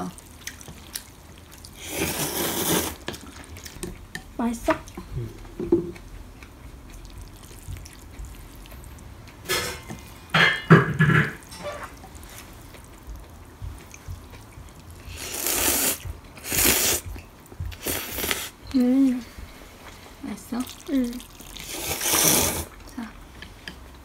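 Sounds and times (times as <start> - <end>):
slurping noodles: 1.8 - 3.1, 15.1 - 17.0, 17.8 - 18.5, 21.5 - 22.8.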